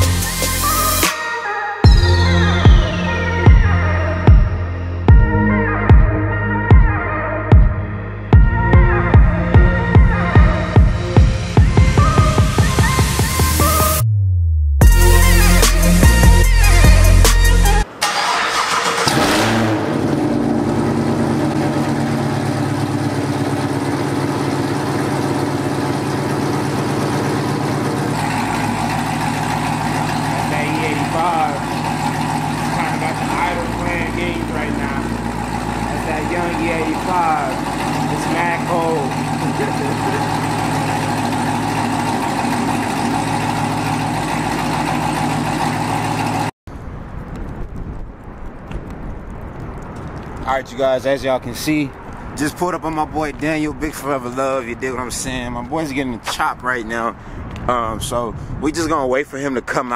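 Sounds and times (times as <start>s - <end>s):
car engine idling: 14.8s - 46.5s
outdoor background noise: 39.2s - 59.9s.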